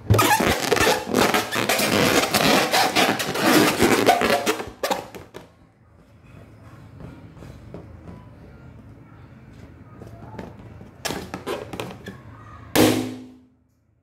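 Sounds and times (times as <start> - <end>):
balloon squeaking against microphone: 0.0 - 5.2.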